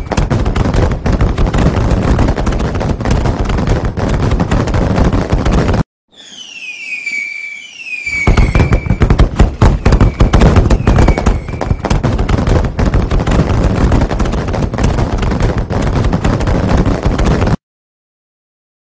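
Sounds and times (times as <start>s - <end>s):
rapid crackling bangs: 0.0s - 5.9s, 8.1s - 17.6s
falling firework whistles: 6.1s - 12.0s.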